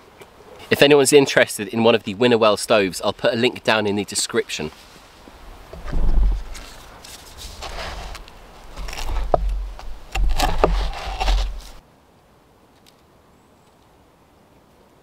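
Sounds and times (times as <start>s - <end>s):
faint woodland background: 0.0s - 15.0s
low rumble: 5.8s - 6.8s.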